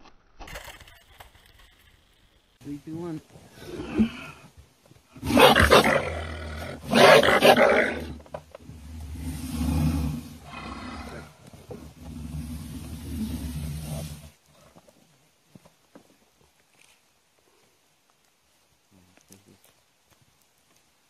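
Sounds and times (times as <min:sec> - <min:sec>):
animal growling: 0:03.5 - 0:04.5, 0:05.2 - 0:14.8
animal roaring: 0:03.5 - 0:04.5, 0:05.2 - 0:14.3.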